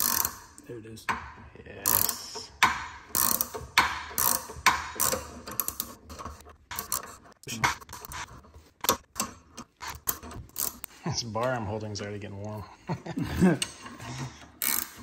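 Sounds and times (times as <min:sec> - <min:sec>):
ratcheting wrench clicking: 0:00.0 - 0:00.7, 0:01.8 - 0:07.2, 0:08.8 - 0:10.9, 0:14.6 - 0:15.0.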